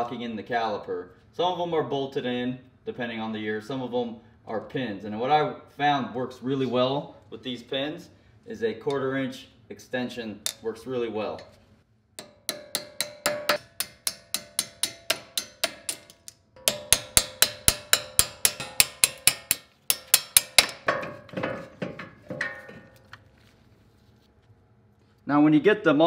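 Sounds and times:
hammer striking metal: 10.4s - 10.7s, 12.2s - 23.2s.

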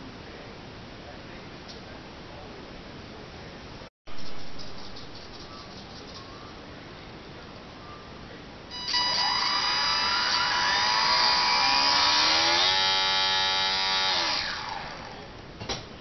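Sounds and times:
small electric motor whining: 8.7s - 15.4s.

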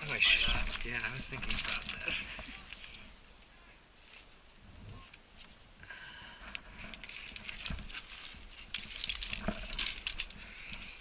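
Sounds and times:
metal climbing gear clinking: 0.0s - 3.4s, 6.4s - 11.0s.

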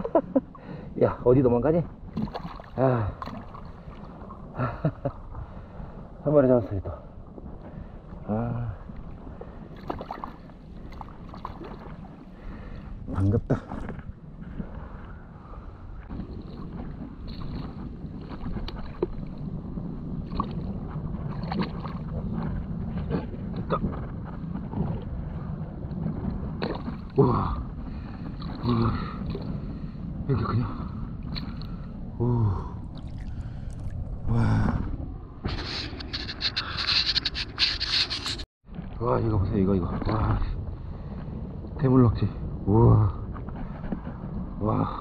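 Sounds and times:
wind on microphone: 0.0s - 45.0s
hand sloshing in shallow water: 32.8s - 34.3s.

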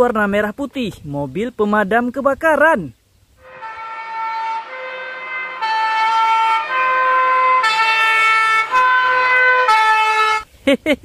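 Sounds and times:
two-tone fire engine siren: 3.4s - 10.4s.

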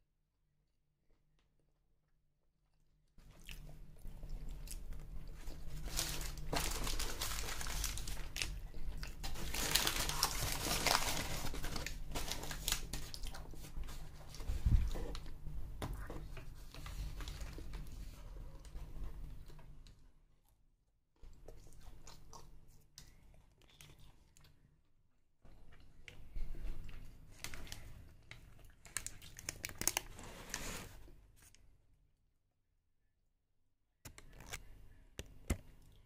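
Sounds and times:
paper napkin crinkling: 5.5s - 14.2s.

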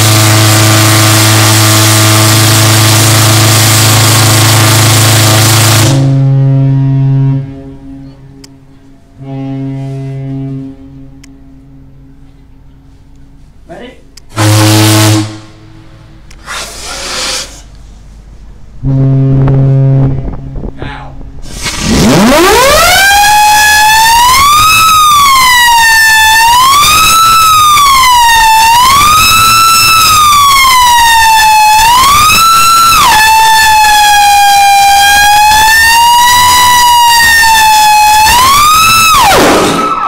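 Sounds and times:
steam whistle blowing: 0.0s - 8.2s, 9.2s - 11.1s, 14.3s - 15.6s, 21.7s - 40.0s
deep horn note: 0.0s - 12.9s, 14.3s - 16.2s, 18.8s - 20.8s.

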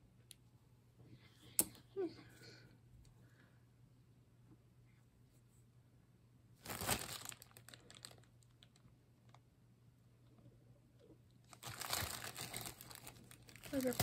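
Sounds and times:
plastic bag crinkling: 6.6s - 9.4s, 11.4s - 14.0s.

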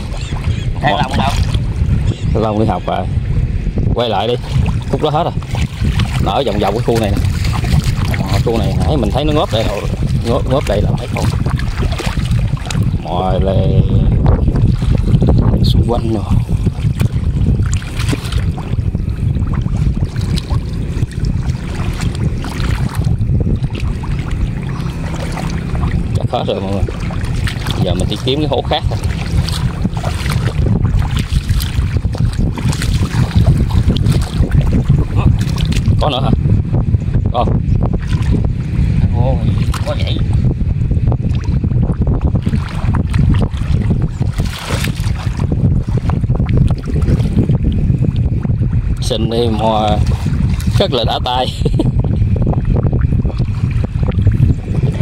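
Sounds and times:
wind buffeting microphone: 0.0s - 55.0s
hands sloshing through muddy water: 4.2s - 13.0s, 16.0s - 36.2s, 39.4s - 40.3s, 41.2s - 48.3s, 49.1s - 51.5s
squelches and splashes in mud: 4.2s - 13.0s, 16.2s - 18.8s, 19.5s - 36.2s, 38.0s - 38.4s, 39.4s - 40.3s, 42.2s - 48.2s, 49.0s - 51.4s.

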